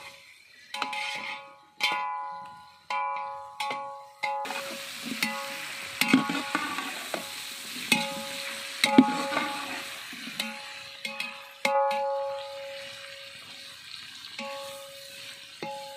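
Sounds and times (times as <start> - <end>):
ladle scraping metal pot: 0.0 - 2.2, 6.0 - 7.1
onions sizzling in oil: 0.0 - 15.9.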